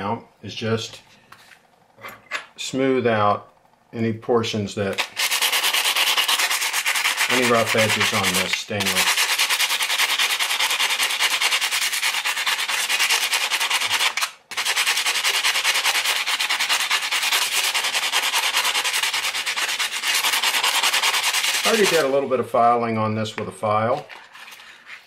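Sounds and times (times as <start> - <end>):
knife scratching on emery cloth: 5.1 - 22.1.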